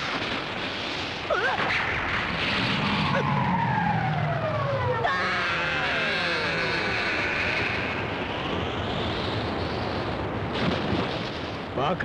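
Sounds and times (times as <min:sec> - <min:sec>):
sharp crack: 0:00.0 - 0:03.7, 0:06.7 - 0:12.0
noisy rumble: 0:00.0 - 0:12.0
whistling tones gliding down: 0:02.8 - 0:08.0.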